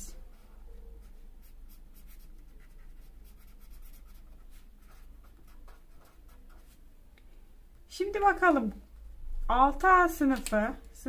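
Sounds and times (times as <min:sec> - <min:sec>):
marker pen scratching on paper: 0:00.3 - 0:06.8.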